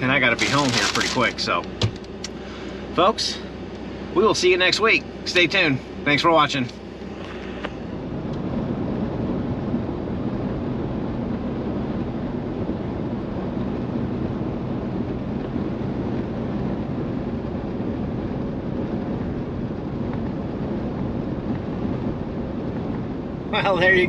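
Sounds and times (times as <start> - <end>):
road and engine rumble in cab: 0.0 - 24.0
wind noise: 7.0 - 24.0.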